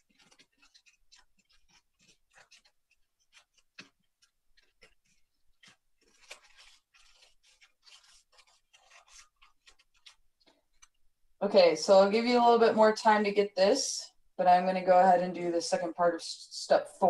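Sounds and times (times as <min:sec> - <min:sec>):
paper crinkling and rustling: 0:00.0 - 0:11.1.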